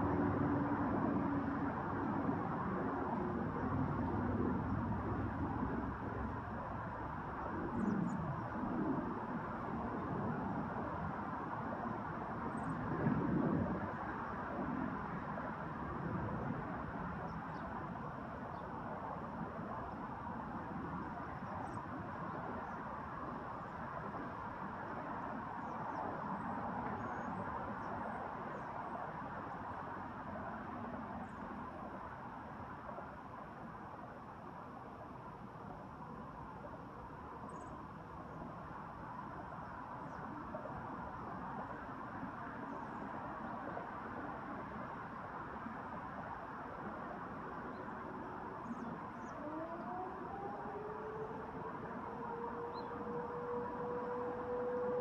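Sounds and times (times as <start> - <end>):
outdoor background rush: 0.0 - 55.0
steady background noise: 0.0 - 55.0.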